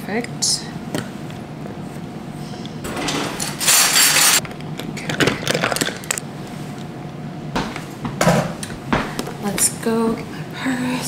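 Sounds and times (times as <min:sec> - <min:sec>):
utensils clinking and rattling: 0:02.8 - 0:04.4.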